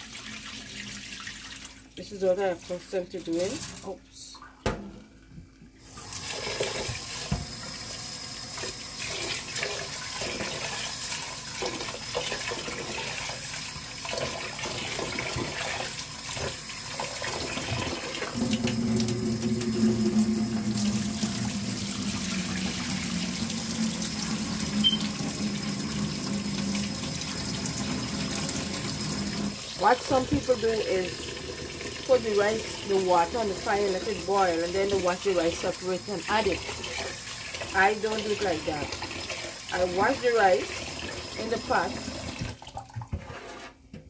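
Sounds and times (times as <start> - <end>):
tap water running into pot: 2.6 - 4.0, 4.6 - 43.8.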